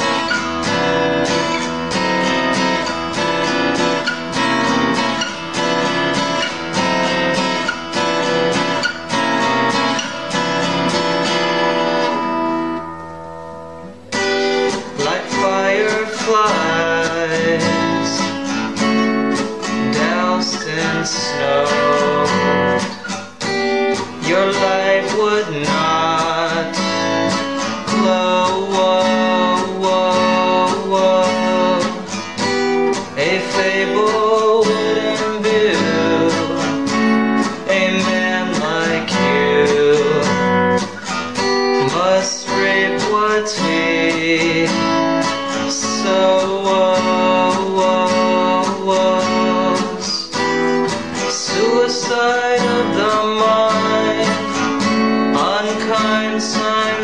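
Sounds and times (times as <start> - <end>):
strummed acoustic guitar: 0.0 - 57.0
person singing: 13.8 - 57.0.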